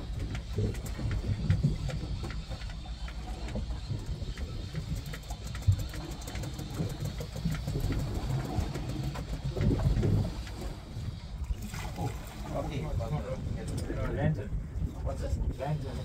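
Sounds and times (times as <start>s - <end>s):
boat engine rumbling: 0.0s - 16.0s
water noise: 0.0s - 16.0s
wind noise: 6.7s - 16.0s.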